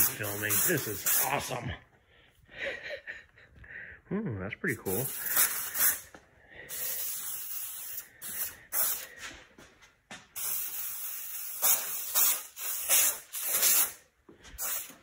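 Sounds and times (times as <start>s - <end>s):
aerosol paint sprayer hissing: 0.0s - 1.6s, 4.9s - 9.2s, 10.4s - 15.0s.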